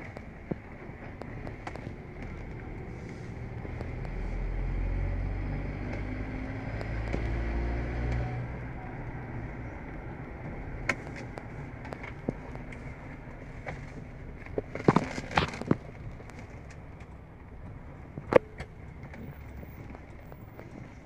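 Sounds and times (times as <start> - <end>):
car engine: 0.0 - 21.0
road noise inside car: 0.0 - 21.0.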